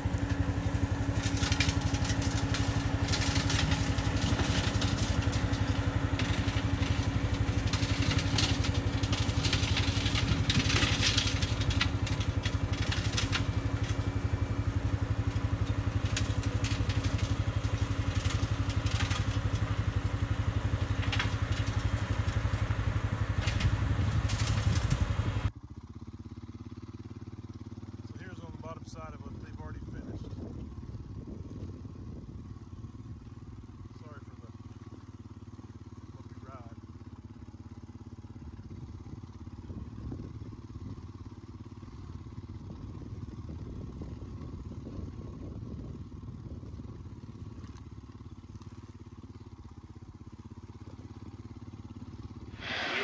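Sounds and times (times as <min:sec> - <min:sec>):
brush snapping and crackling: 0:00.0 - 0:25.5
diesel engine running under load: 0:00.0 - 0:53.0.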